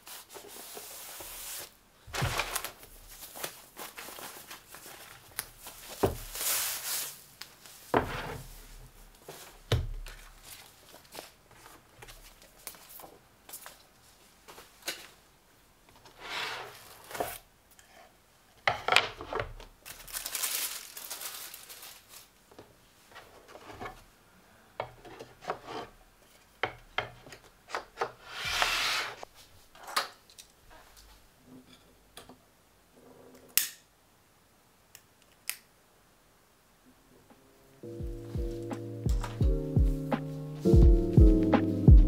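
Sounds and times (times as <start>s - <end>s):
bamboo plates rubbing and knocking: 24.8s - 29.3s.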